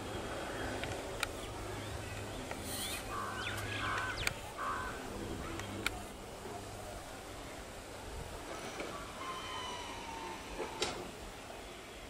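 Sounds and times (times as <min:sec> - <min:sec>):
crow cawing: 0:03.1 - 0:05.0
sharp clicks: 0:03.6 - 0:04.4.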